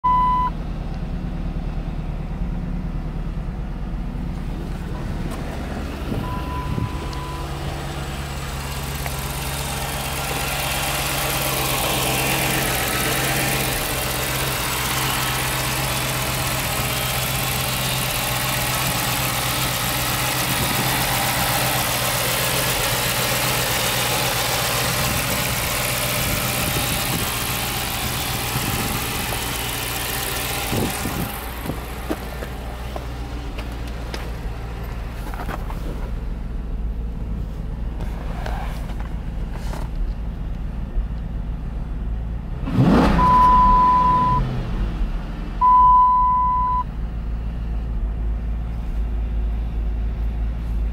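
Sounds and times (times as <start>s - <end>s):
short beep: 0.0s - 0.6s, 6.2s - 7.5s, 43.2s - 44.5s, 45.6s - 46.9s
car engine idling: 0.0s - 42.6s, 43.2s - 50.9s.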